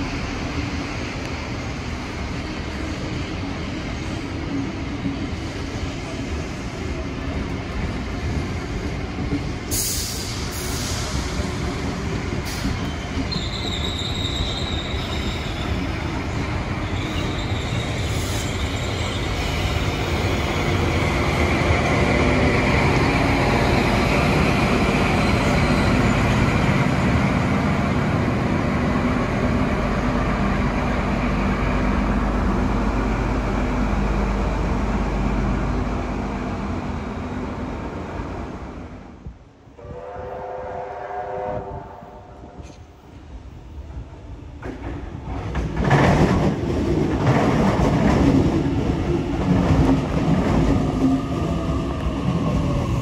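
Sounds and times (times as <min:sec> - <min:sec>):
train running on rails: 0:00.0 - 0:53.0
high wheel squeal: 0:12.8 - 0:16.1, 0:16.8 - 0:20.8.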